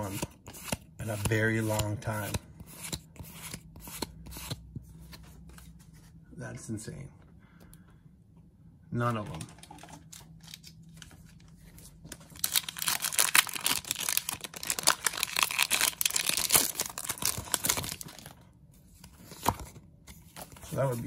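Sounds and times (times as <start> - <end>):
foil wrapper tearing and crinkling: 12.3 - 18.3.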